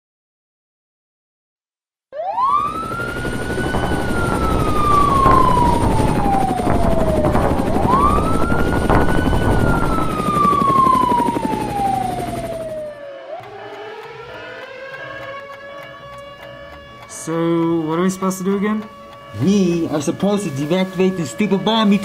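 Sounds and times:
siren wailing: 2.1 - 22.0
low rumble: 3.3 - 10.4.

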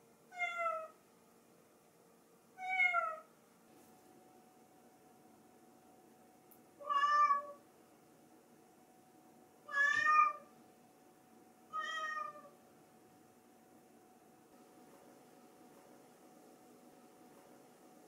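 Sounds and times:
cat meowing: 0.3 - 1.0, 2.6 - 3.3, 6.8 - 7.6, 9.7 - 10.5, 11.7 - 12.6.

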